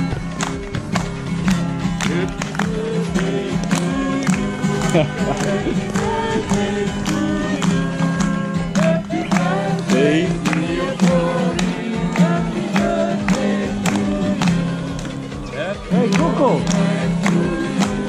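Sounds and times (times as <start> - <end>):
people clapping in time: 0.0 - 18.0
strummed acoustic guitar: 0.0 - 18.0
group of people singing: 2.0 - 18.0.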